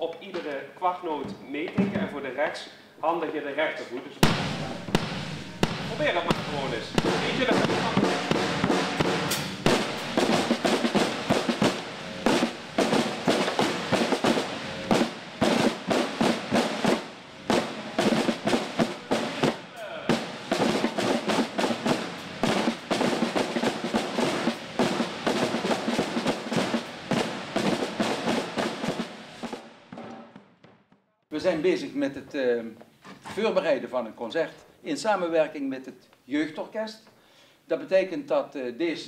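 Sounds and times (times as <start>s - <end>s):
snare and bass drums playing: 4.2s - 30.7s.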